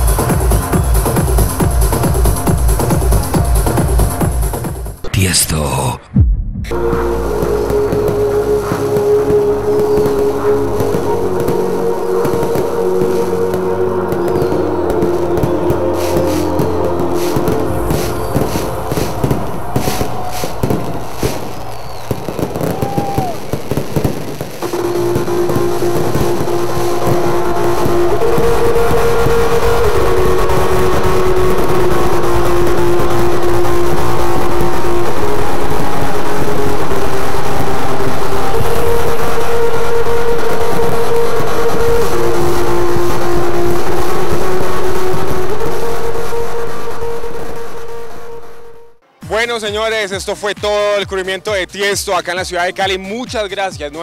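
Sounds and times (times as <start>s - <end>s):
fireworks bangs and crackles: 0.0s - 48.1s
electronic synthesizer drone: 6.1s - 22.4s, 24.6s - 49.0s
falling whistle: 14.0s - 23.7s.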